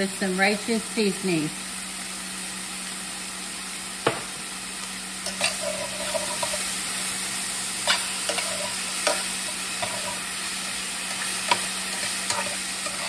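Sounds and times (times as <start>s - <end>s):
vegetables sizzling in a pan: 0.0s - 13.0s.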